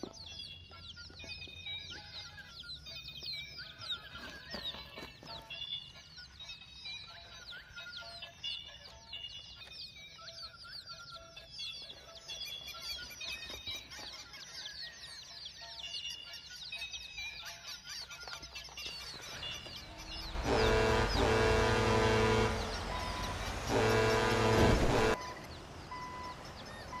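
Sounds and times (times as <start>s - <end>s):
chicks cheeping: 0.0s - 27.0s
long loud steady tones: 19.9s - 27.0s.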